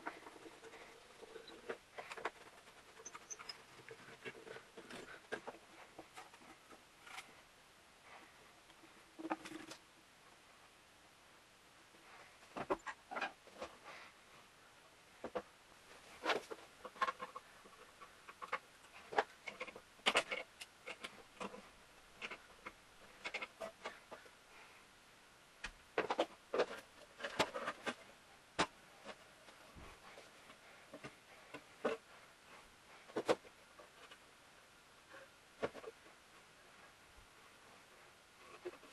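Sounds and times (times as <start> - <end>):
wooden parts knocking and clacking: 0.0 - 7.3, 16.2 - 24.2, 25.6 - 28.0.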